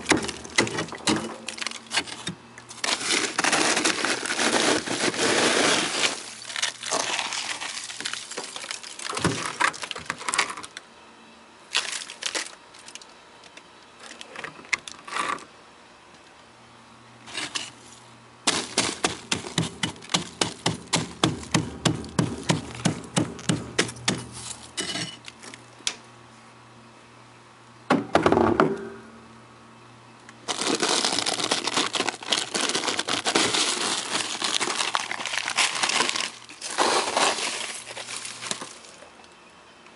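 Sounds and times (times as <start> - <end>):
frost crunching: 0.0 - 10.8, 11.7 - 13.1, 18.5 - 21.7, 30.5 - 39.2.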